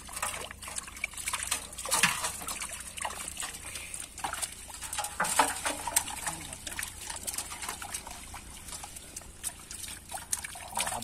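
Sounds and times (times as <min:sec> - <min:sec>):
shallow water splashing: 0:00.0 - 0:11.0.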